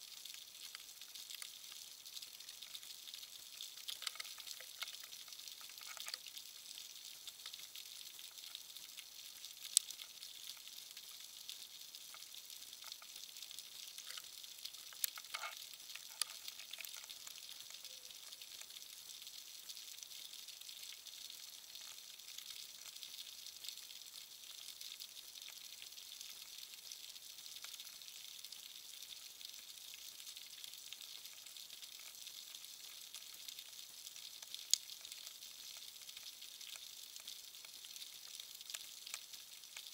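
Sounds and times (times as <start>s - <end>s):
underwater crackling hiss: 2.4s - 11.2s, 12.0s - 18.8s
sharp underwater clicks: 3.7s - 6.3s, 13.9s - 17.9s.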